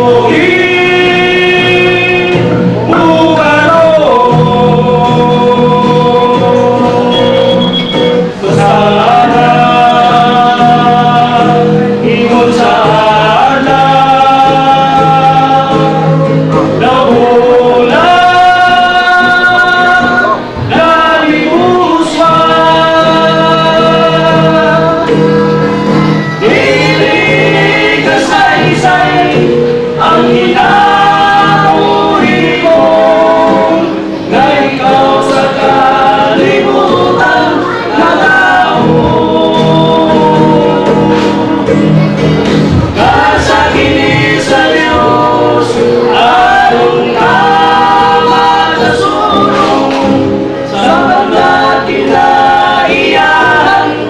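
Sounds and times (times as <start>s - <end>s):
acoustic guitar strumming: 0.0s - 54.0s
group singing a religious song: 0.0s - 54.0s.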